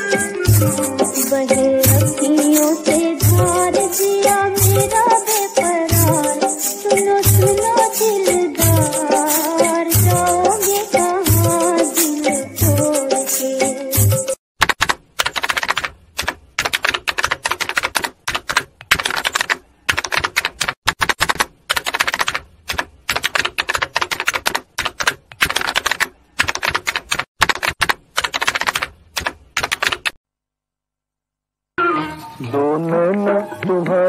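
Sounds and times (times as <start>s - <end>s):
rapid dry clicking: 14.6s - 30.2s.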